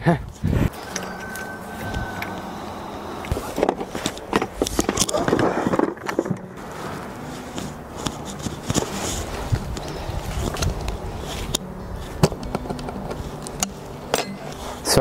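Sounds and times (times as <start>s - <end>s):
rustling: 0.5s - 15.0s.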